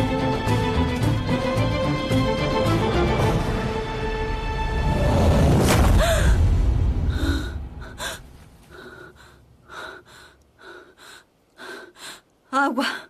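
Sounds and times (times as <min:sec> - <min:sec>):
woman gasping and breathing hard: 0:06.0 - 0:13.0.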